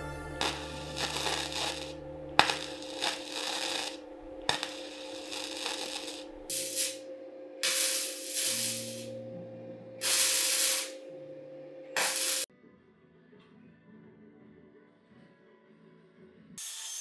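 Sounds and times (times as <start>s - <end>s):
welder arc crackling and sizzling: 0.4s - 9.2s, 10.0s - 11.0s, 11.9s - 12.5s.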